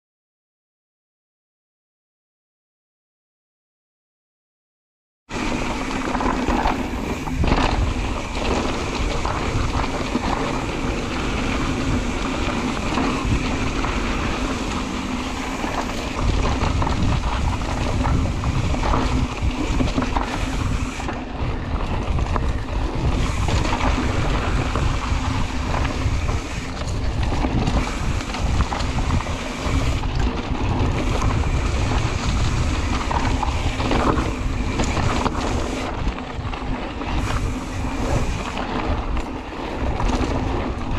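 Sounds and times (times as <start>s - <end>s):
bike clicks and rattles: 5.3s - 40.9s
wind buffeting microphone: 5.6s - 40.9s.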